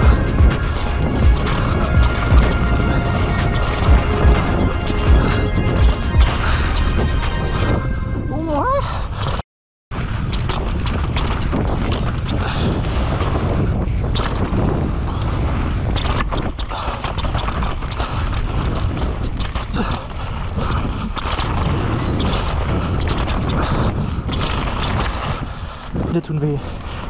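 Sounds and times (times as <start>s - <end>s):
wind and tyre rumble: 0.0s - 27.0s
bike knocks and rattles: 10.0s - 25.5s.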